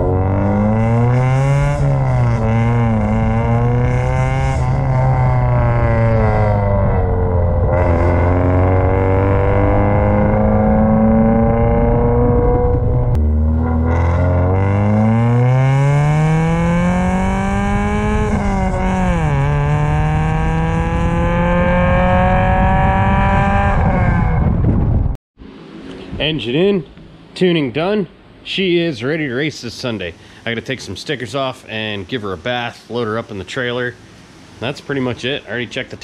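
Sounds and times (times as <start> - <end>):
car engine accelerating: 0.0 - 26.2.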